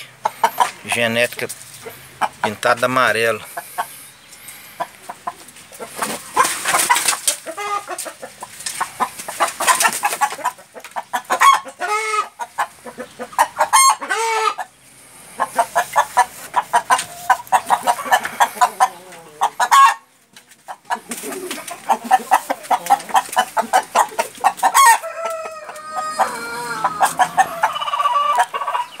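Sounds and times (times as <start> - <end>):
chickens clucking: 0.0 - 29.0
short pitched chicken calls: 23.6 - 29.0
rooster crowing: 24.7 - 29.0.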